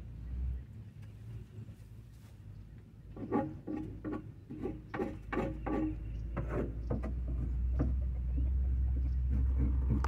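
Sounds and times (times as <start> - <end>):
scraping on wooden boards: 3.1 - 10.0.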